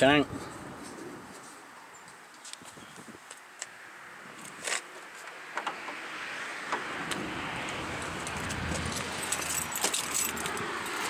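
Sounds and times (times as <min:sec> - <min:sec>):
keys jangling: 0:08.3 - 0:11.0.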